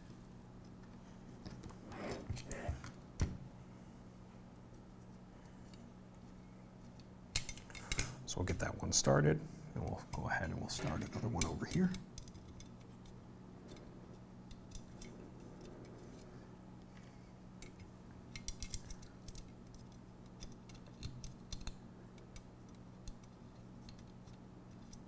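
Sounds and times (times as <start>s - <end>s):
low hum: 0.0s - 25.0s
small metal clicks of bolts: 17.6s - 25.0s.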